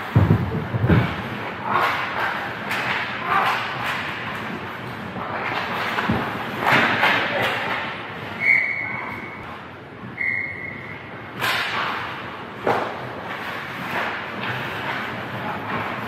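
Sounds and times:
referee's whistle blasts: 0:10.2 - 0:10.9
skates scraping and knocking on ice: 0:12.6 - 0:15.9.

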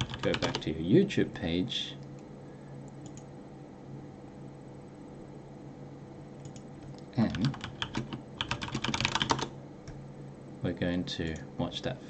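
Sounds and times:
keyboard typing clicks: 0:00.0 - 0:00.6, 0:02.9 - 0:03.3, 0:06.4 - 0:10.0
faint steady low hum: 0:00.0 - 0:12.0.

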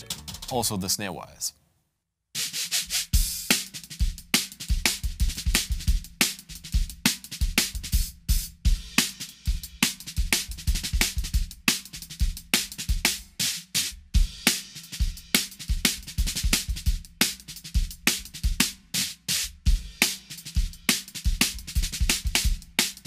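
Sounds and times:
snare drum cracks: 0:00.0 - 0:00.6.

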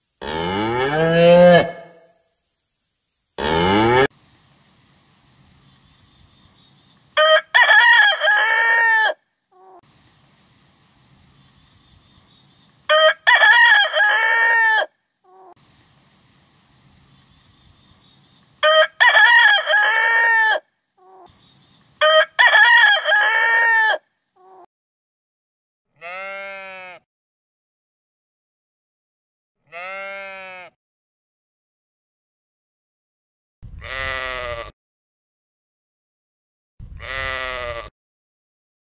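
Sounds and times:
rooster crowing: 0:01.2 - 0:02.1, 0:07.2 - 0:09.2, 0:12.9 - 0:14.9, 0:18.6 - 0:20.6, 0:22.0 - 0:24.0.

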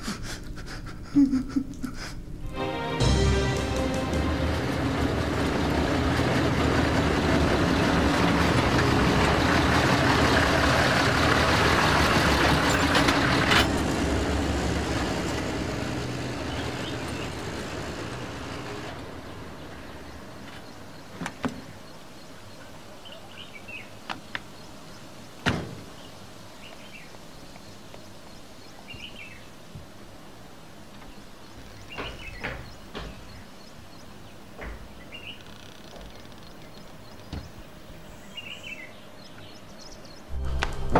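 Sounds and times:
jeep engine driving: 0:03.0 - 0:21.2
bird chirps: 0:35.0 - 0:40.6.

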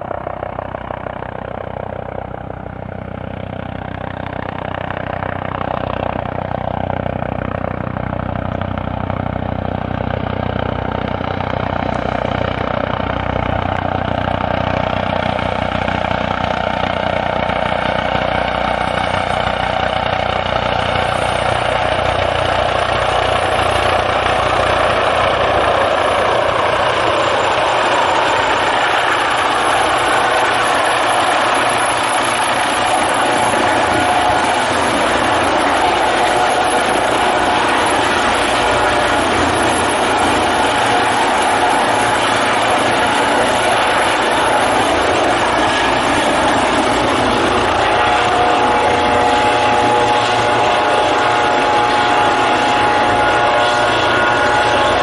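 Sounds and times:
helicopter rotors and turbines: 0:00.0 - 0:55.0
high turbine whine: 0:00.0 - 0:55.0.

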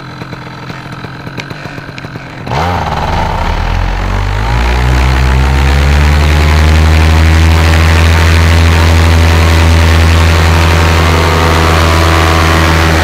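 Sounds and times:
paramotor engine revving: 0:00.0 - 0:13.0.

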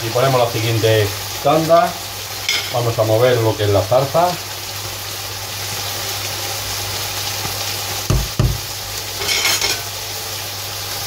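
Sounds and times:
chicken sizzling in frying pan: 0:00.0 - 0:11.0.

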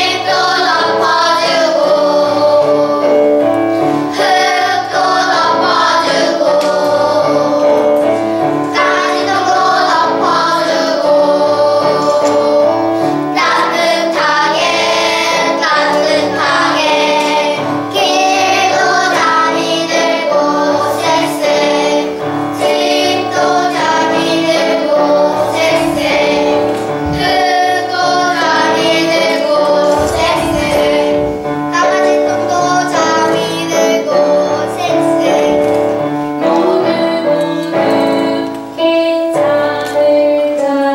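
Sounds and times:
children singing: 0:00.0 - 0:40.9
instrumental accompaniment: 0:00.0 - 0:40.9.

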